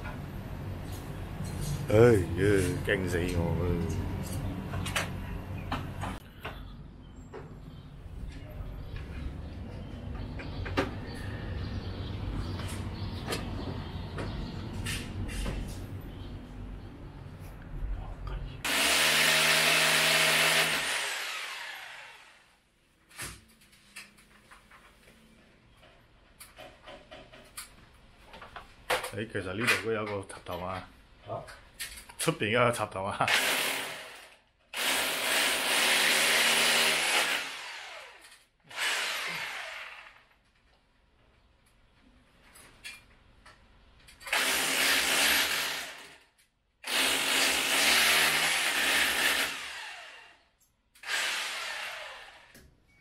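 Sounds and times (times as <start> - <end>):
electric drill boring into wall: 18.7 - 22.5, 33.3 - 40.4, 44.2 - 46.2, 46.8 - 50.4, 51.0 - 52.6.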